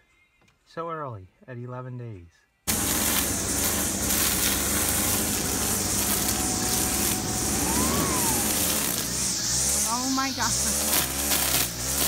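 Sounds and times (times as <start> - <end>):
string trimmer engine running: 2.7 - 12.0
trimmer line cutting through ivy: 2.7 - 12.0.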